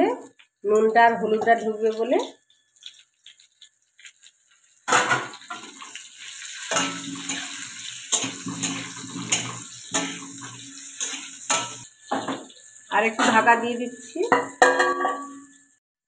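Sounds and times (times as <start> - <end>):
oil sizzling: 0.0 - 15.8
spatula scraping metal pan: 6.6 - 15.6.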